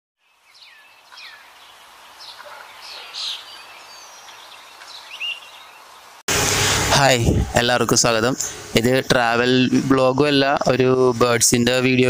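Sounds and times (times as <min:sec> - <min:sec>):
bird chirping: 0:00.2 - 0:06.2.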